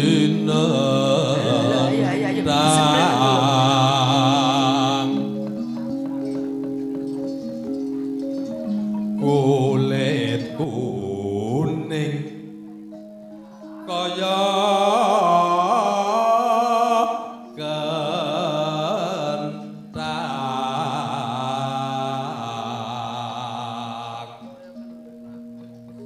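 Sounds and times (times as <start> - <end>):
person singing solo: 0.0 - 5.4, 13.7 - 24.6
gamelan tones: 0.0 - 26.0.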